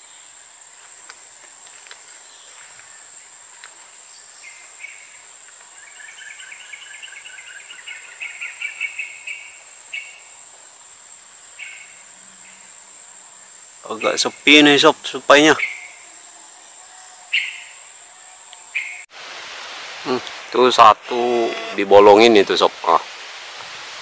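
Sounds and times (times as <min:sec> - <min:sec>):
insects droning: 0:00.0 - 0:24.0.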